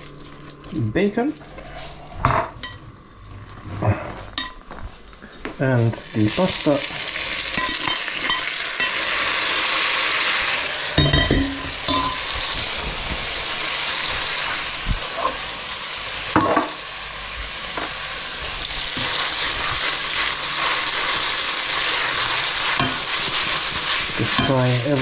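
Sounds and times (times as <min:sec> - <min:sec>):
pasta and bacon sizzling in a pan: 0:06.0 - 0:25.0.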